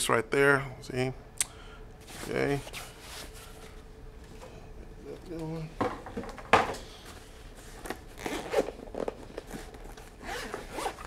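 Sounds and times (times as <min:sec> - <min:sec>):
zipper being pulled open: 0:07.9 - 0:11.0.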